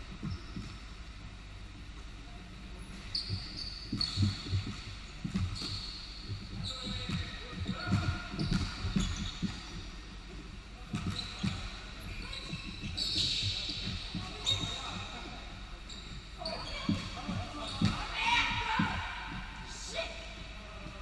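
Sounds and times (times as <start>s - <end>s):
sneakers squeaking on court: 0.2s - 0.8s, 2.8s - 10.1s, 10.8s - 19.5s
basketball bouncing on hardwood floor: 3.1s - 9.8s, 10.9s - 14.8s, 16.6s - 19.0s.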